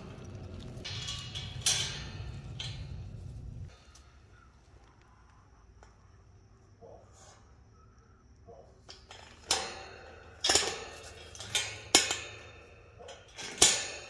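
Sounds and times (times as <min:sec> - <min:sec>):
wire cage panels clanking: 0:00.0 - 0:03.7, 0:08.5 - 0:14.0.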